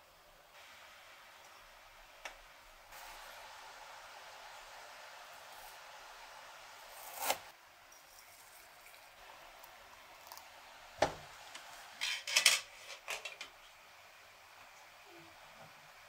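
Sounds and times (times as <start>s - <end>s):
metal pot lid clattering: 12.0s - 13.6s.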